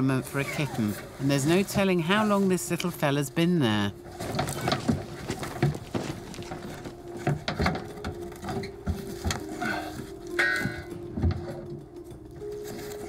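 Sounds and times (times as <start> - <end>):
pole scraping: 4.0 - 11.4
pole knocking and tapping: 4.2 - 9.6.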